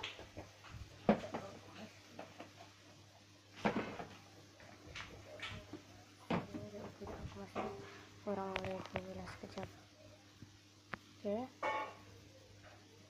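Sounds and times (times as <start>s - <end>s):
small clicks and taps: 8.5s - 9.7s.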